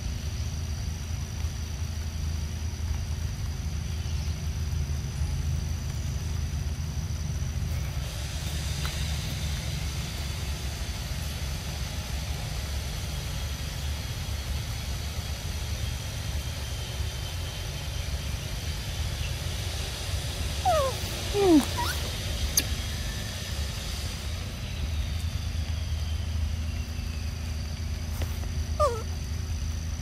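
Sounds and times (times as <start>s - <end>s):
animal calls sliding down: 20.6s - 22.1s, 28.8s - 29.1s.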